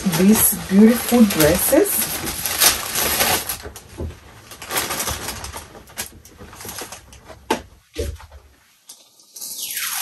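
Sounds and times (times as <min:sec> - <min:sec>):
paper bag rustling: 0:00.0 - 0:07.3.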